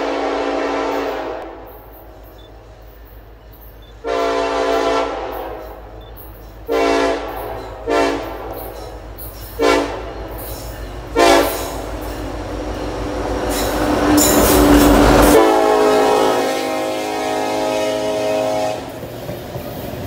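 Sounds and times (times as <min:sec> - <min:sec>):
locomotive air horn blasts: 0:00.0 - 0:01.8, 0:04.0 - 0:06.0, 0:06.6 - 0:08.8, 0:09.6 - 0:10.2, 0:11.1 - 0:11.9, 0:13.7 - 0:19.0
locomotive engine and wheels passing: 0:00.0 - 0:20.0.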